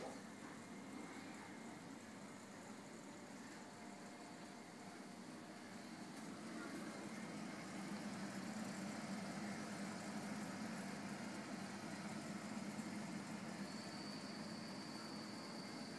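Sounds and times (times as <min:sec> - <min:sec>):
aquarium pumps humming: 0:00.0 - 0:15.9
faint high whine: 0:00.0 - 0:15.9.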